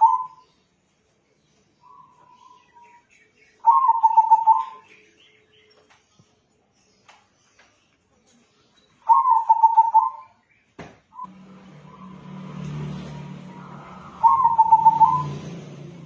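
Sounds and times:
dove cooing: 0.0 - 0.4, 3.6 - 4.8, 9.1 - 10.3, 13.4 - 15.5
low hum: 11.2 - 16.0.

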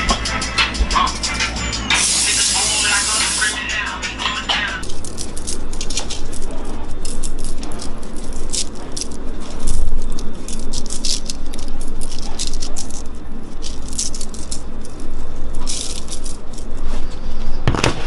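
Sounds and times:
spice shaker rattling: 4.8 - 17.5.

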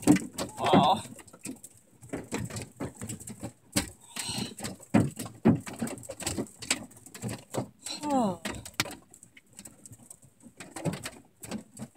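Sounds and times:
hail hammering on metal: 0.0 - 9.0.

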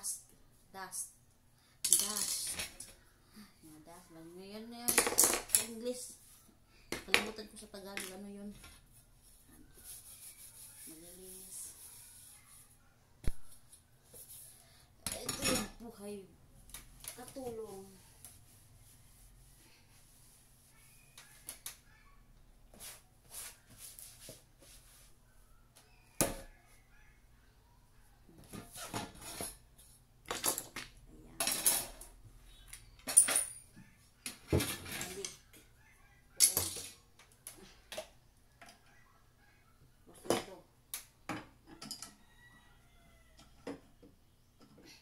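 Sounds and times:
cloth wiping and scraping: 8.9 - 12.8, 17.6 - 21.4, 22.7 - 25.2.

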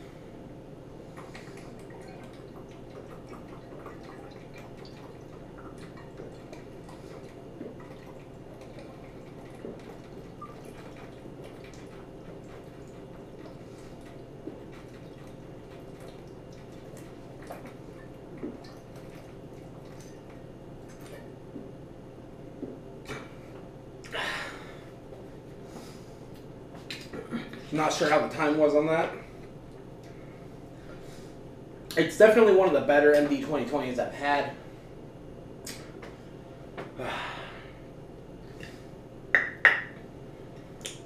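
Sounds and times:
liquid glugging and swallowing: 1.1 - 21.7.

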